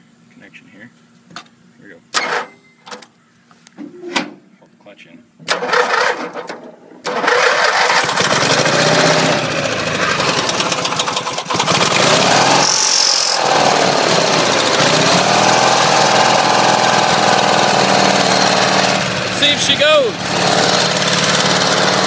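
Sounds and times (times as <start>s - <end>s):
lawn tractor engine starting and running: 5.4s - 22.0s.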